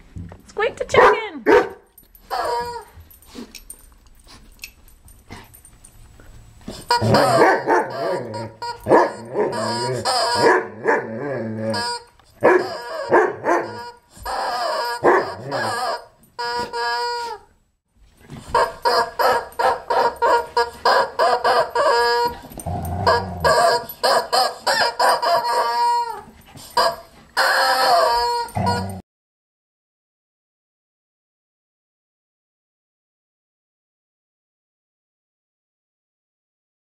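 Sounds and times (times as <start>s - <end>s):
rubber chicken toy squawking: 6.9s - 10.5s, 11.7s - 12.0s, 13.7s - 17.5s, 18.5s - 22.4s, 23.0s - 28.8s.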